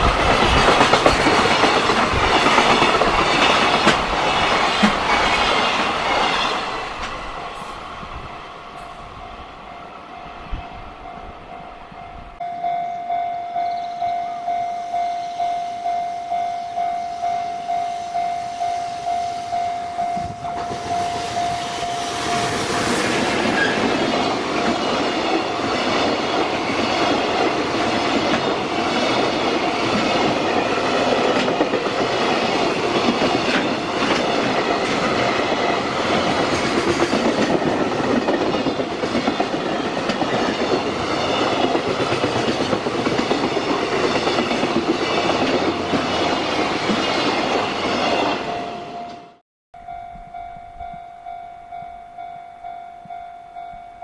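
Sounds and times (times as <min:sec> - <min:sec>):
wheels clattering over rail joints: 0:00.0 - 0:07.7
freight train passing: 0:00.0 - 0:54.0
level-crossing warning bell: 0:00.0 - 0:54.0.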